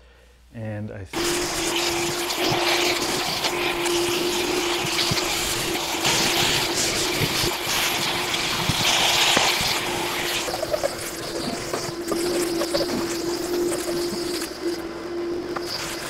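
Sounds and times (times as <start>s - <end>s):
shop vacuum running: 1.2s - 16.0s.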